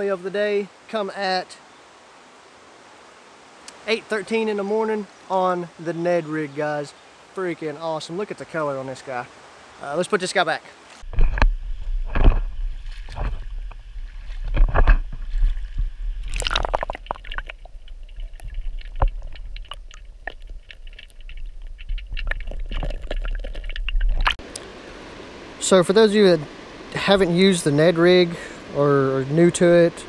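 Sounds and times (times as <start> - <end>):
knocks and splashes: 11.0 - 24.4
low underwater rumble: 11.1 - 24.4
underwater river gurgling: 11.1 - 30.0.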